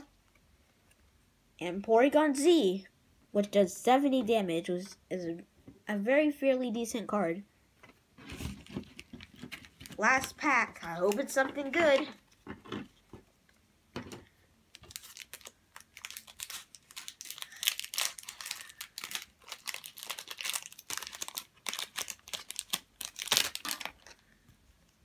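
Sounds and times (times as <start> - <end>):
foil wrapper crinkling: 14.7 - 24.3.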